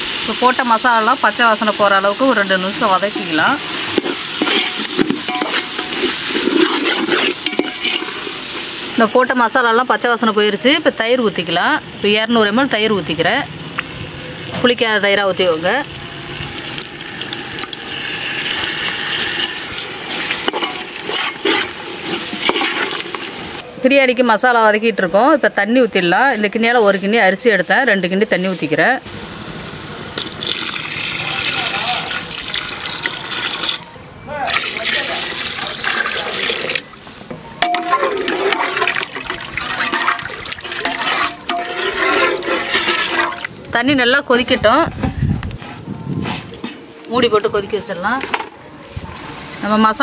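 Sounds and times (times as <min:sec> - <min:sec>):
masala sizzling in a pot: 0:00.0 - 0:33.9, 0:34.5 - 0:44.8, 0:45.5 - 0:50.0
metal ladle scraping a pot: 0:02.8 - 0:08.7, 0:17.2 - 0:23.5, 0:37.6 - 0:43.6
ladle clinking against pot: 0:04.0 - 0:06.7, 0:07.4 - 0:08.1, 0:37.6 - 0:39.1, 0:39.8 - 0:43.5
water pouring into metal pot: 0:15.5 - 0:23.6, 0:30.2 - 0:33.9, 0:34.5 - 0:37.0, 0:37.6 - 0:43.6
yogurt pouring: 0:16.1 - 0:19.7, 0:30.2 - 0:33.8
liquid sloshing while stirred: 0:37.8 - 0:43.5.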